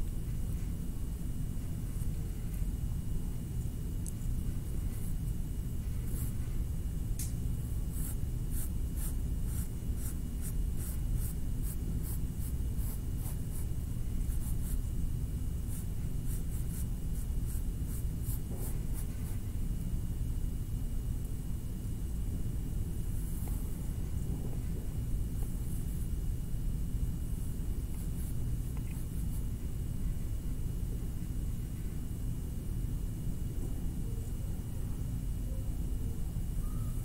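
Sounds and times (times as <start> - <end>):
low room hum: 0.0 - 37.0
drawing tool scratching paper: 7.9 - 13.7.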